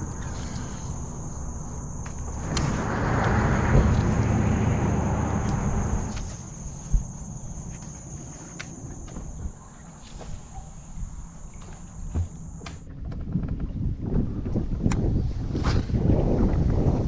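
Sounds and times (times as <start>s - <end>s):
wind noise on microphone: 0.0s - 7.6s, 12.8s - 17.0s
steady high-pitched whine: 0.0s - 9.9s.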